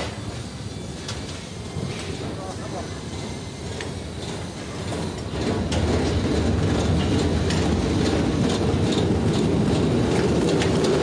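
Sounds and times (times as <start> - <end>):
machinery rumbling: 0.0 - 11.0.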